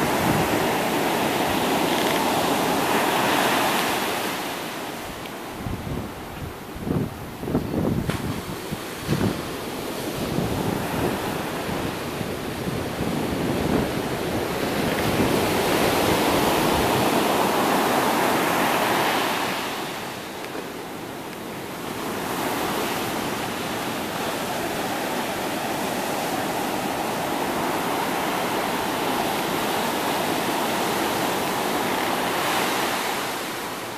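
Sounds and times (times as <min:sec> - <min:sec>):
wind buffeting microphone: 0:00.0 - 0:20.2
ocean waves breaking: 0:00.0 - 0:33.9.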